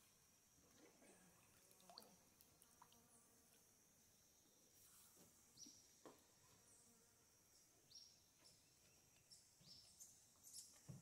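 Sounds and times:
bird chirping: 0:07.9 - 0:11.0.

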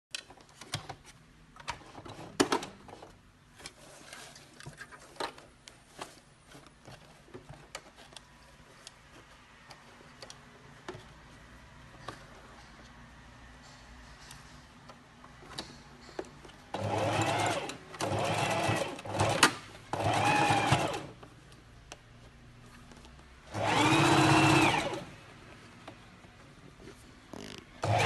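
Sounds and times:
sewing machine clicking: 0:16.7 - 0:21.2, 0:23.5 - 0:25.1, 0:27.8 - 0:28.0.

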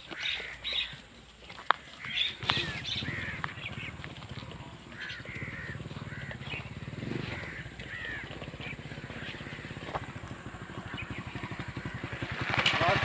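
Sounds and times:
small birds chirping: 0:00.0 - 0:13.0
low pulsing motor hum: 0:02.1 - 0:12.4.

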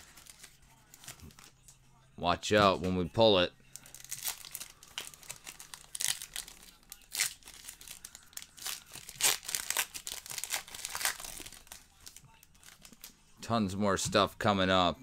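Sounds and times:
foil wrapper crinkling: 0:00.0 - 0:01.5, 0:03.8 - 0:13.1.

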